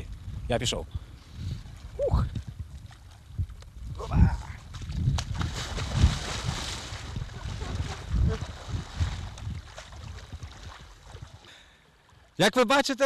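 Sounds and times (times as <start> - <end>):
wind on microphone: 0.0 - 11.5
water splashing: 4.0 - 11.5.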